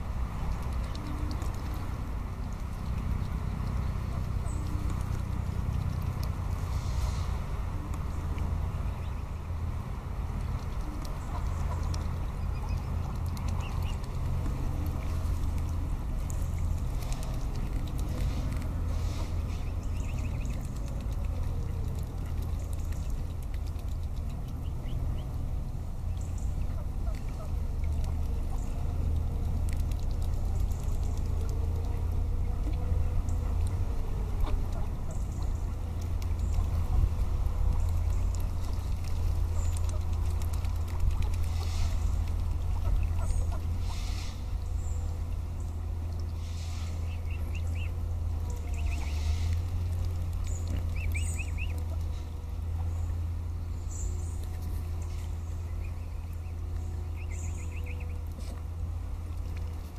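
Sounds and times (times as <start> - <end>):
water splashing: 0.0 - 52.9
steady low rumble: 0.0 - 59.9
small bird chirping: 19.4 - 25.4, 47.0 - 52.1, 52.9 - 58.5.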